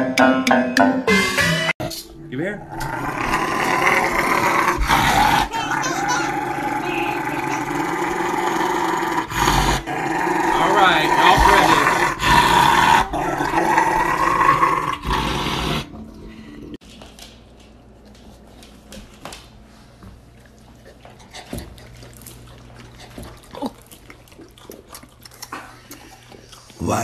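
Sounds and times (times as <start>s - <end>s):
dog growling and whining: 2.6s - 16.0s.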